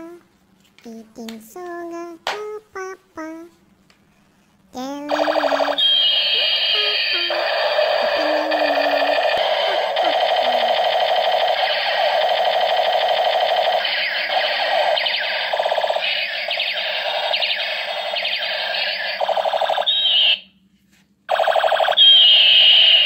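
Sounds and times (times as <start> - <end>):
toy gun electronic sound effects: 5.1 - 20.4, 21.3 - 23.0.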